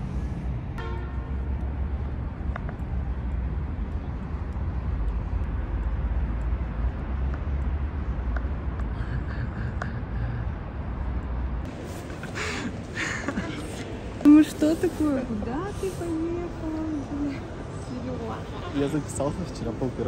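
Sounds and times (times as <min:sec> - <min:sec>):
low city rumble: 0:00.0 - 0:20.0.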